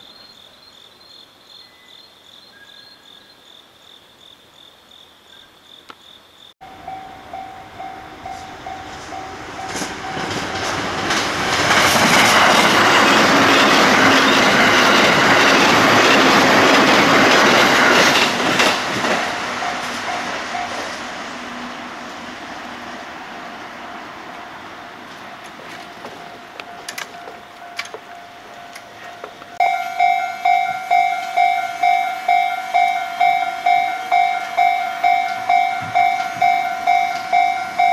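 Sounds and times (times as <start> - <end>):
crickets chirping: 0.0 - 37.9
electric train passing: 6.6 - 37.9
train wheel clatter: 6.9 - 21.1, 25.1 - 37.9.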